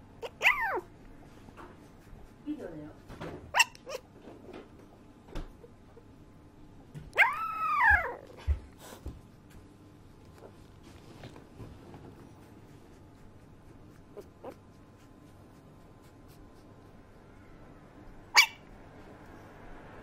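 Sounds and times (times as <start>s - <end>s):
puppy whining: 0.2s - 1.0s, 3.5s - 4.5s, 7.1s - 8.7s, 13.1s - 15.3s, 18.3s - 18.8s.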